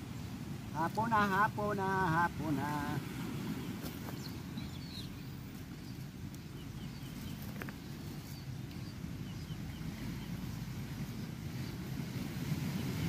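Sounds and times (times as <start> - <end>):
rough surf on rocks: 0.0 - 13.0
wind: 0.0 - 13.0
faint bird chirps: 3.6 - 10.4.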